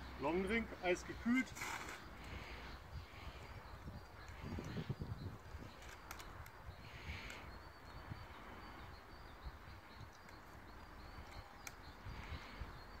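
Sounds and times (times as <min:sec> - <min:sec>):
faint clicks: 0:05.7 - 0:06.6, 0:11.2 - 0:12.0.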